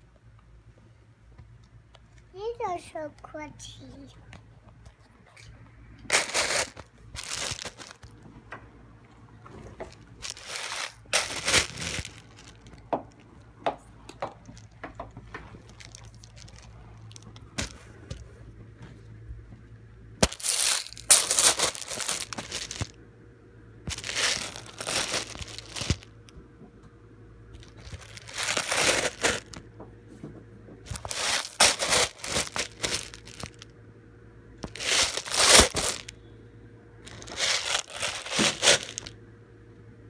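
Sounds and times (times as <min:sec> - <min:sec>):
close crinkling and rustling: 0:06.1 - 0:08.4, 0:09.1 - 0:19.1, 0:20.2 - 0:23.0, 0:23.9 - 0:26.3, 0:27.6 - 0:29.7, 0:30.8 - 0:33.7, 0:34.6 - 0:36.1, 0:37.0 - 0:39.1.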